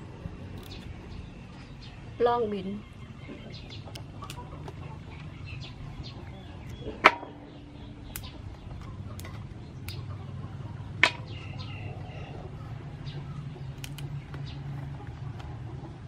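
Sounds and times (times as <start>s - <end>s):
steady low hum: 0.0s - 16.0s
beans snapping: 0.5s - 0.9s, 8.1s - 10.0s, 13.7s - 14.4s.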